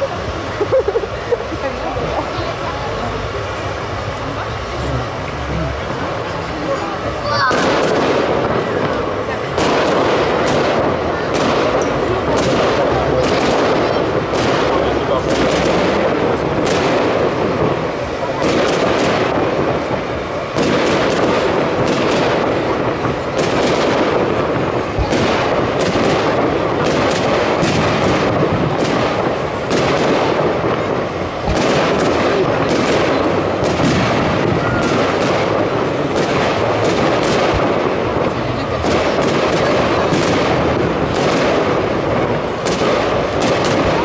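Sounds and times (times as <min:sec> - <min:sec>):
fireworks bangs: 0:00.0 - 0:44.0
fireworks crackle and rumble: 0:00.0 - 0:44.0.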